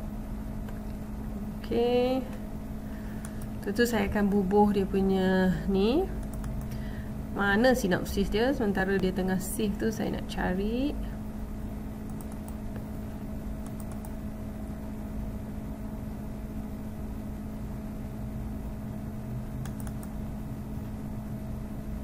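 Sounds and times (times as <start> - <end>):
steady low hum: 0.0 - 22.0
computer mouse clicks: 3.2 - 3.5, 6.2 - 6.8, 12.1 - 13.0, 13.6 - 14.2, 19.6 - 20.2.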